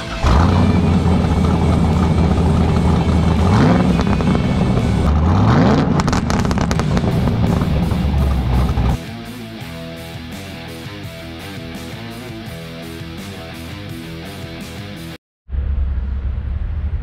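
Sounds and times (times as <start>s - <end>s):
music: 0.0s - 5.0s, 7.1s - 15.2s
engine running and revving: 0.0s - 9.0s.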